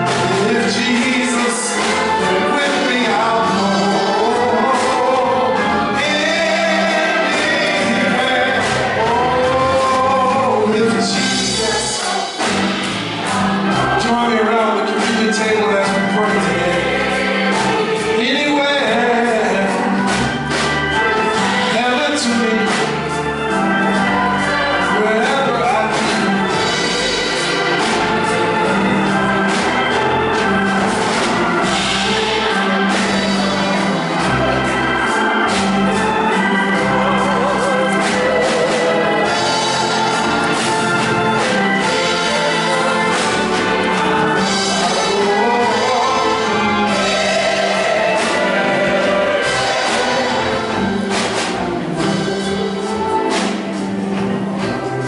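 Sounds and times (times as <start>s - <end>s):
choir singing a hymn: 0.0s - 55.0s
organ: 0.0s - 55.0s.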